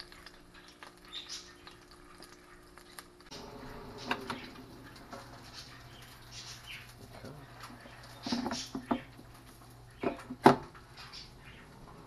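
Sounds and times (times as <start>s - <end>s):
hot food crackling: 0.0s - 11.5s
air fryer humming: 0.0s - 12.0s
air fryer basket clack: 3.4s - 6.2s.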